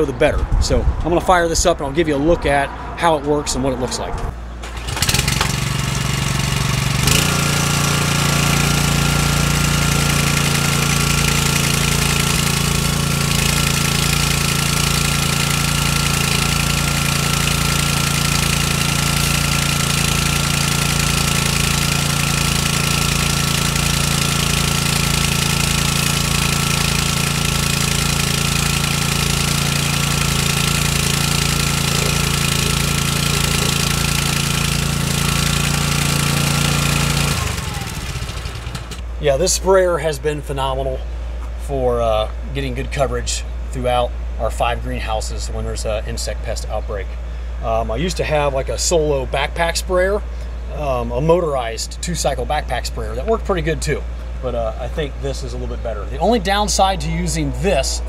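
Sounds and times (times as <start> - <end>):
small gas engine starting and running: 4.5 - 39.2, 51.6 - 58.0.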